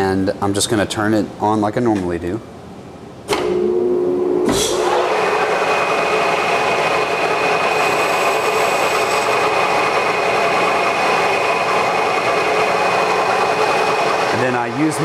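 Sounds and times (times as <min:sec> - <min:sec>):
lathe running with high whine: 0:03.6 - 0:15.0
cutting tool on metal: 0:07.6 - 0:09.4.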